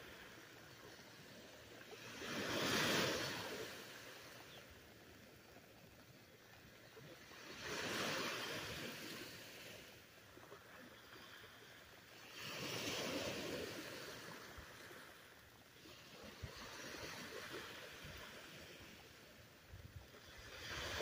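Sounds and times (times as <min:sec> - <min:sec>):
surf washing up beach: 0:00.0 - 0:06.1, 0:06.9 - 0:21.0.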